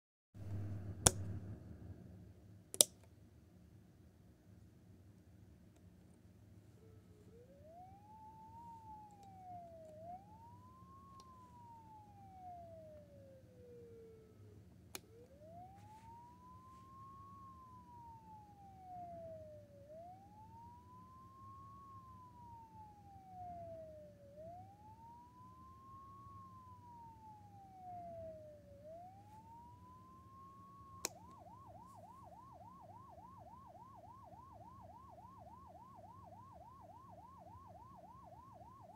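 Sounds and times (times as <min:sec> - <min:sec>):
steady low hum: 0:00.4 - 0:38.9
sharp click: 0:02.8 - 0:03.1
electronic siren wailing: 0:06.8 - 0:38.9.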